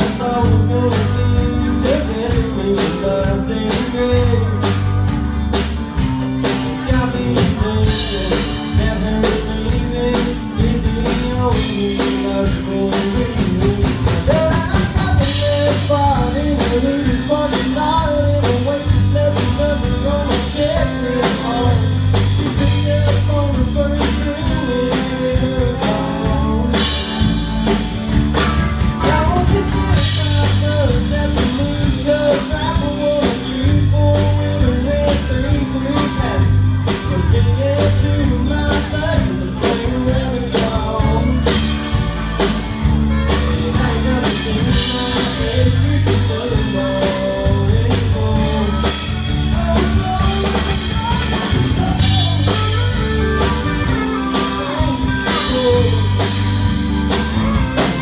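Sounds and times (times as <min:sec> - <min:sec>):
drum kit beat: 0:00.0 - 0:58.0
rock band playing: 0:00.0 - 0:58.0.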